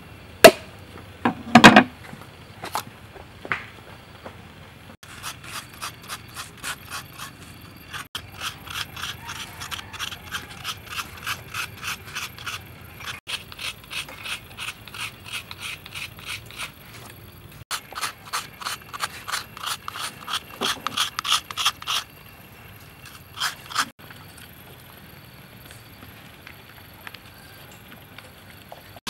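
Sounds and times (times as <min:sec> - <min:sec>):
coconut scraper rasping: 0:05.0 - 0:22.2, 0:23.0 - 0:24.0.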